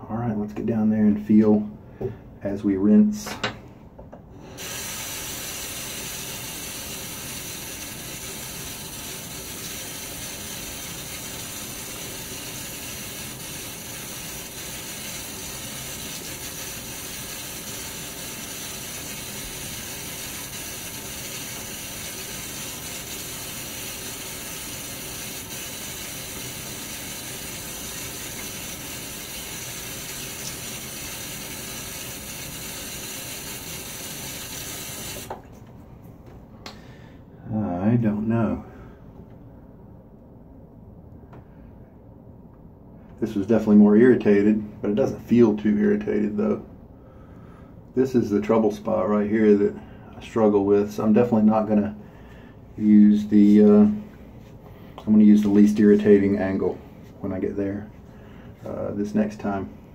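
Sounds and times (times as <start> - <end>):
faucet running: 4.5 - 35.5.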